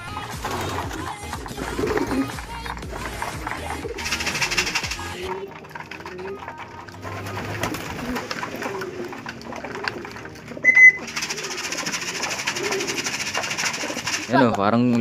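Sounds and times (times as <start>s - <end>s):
pigeons cooing: 0.0s - 14.5s
shrill tone: 10.6s - 11.1s.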